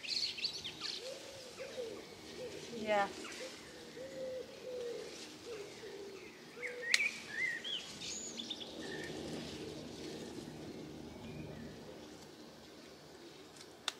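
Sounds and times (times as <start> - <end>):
small birds chirping: 0.0 - 13.9
dove cooing: 1.0 - 7.6.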